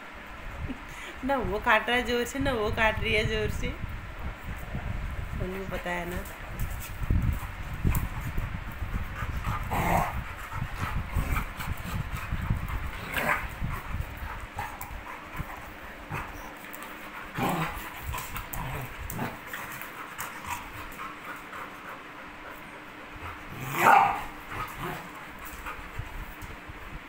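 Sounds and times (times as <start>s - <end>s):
dogs scuffling: 5.6s - 26.7s
dogs growling and yipping: 7.4s - 26.4s.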